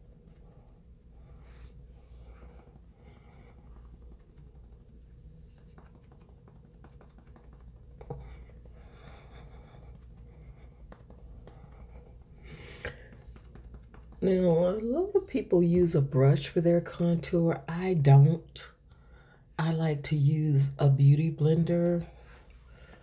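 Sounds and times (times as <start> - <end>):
low steady hum: 0.0 - 23.0
makeup sponge dabbing: 1.2 - 16.6.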